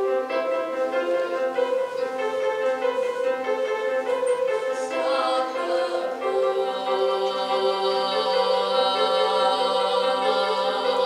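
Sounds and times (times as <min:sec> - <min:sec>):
instrumental backing track: 0:00.0 - 0:11.0
person singing: 0:04.5 - 0:11.0.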